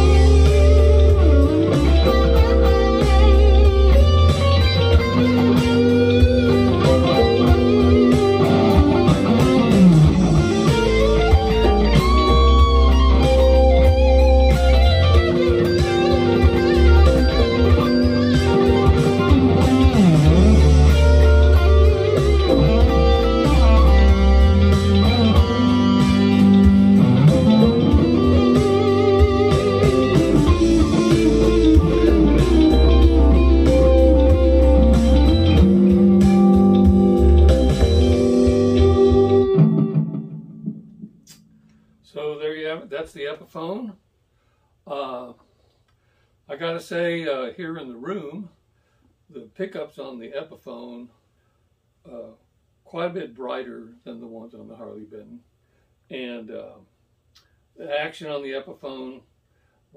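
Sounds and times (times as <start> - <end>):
deep bass: 0.0 - 39.8
electric guitar lead lines: 0.0 - 42.4.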